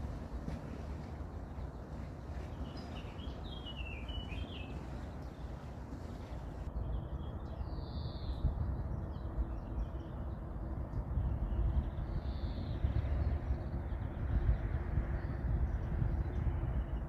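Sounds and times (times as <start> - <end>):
low background rumble: 0.0 - 7.7
songbird singing: 0.0 - 17.0.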